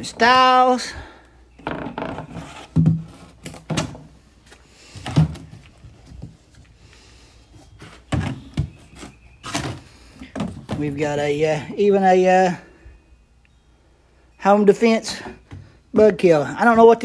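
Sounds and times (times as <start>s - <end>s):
plastic jugs thumping on concrete: 1.6s - 4.2s, 4.9s - 6.6s, 7.8s - 11.1s.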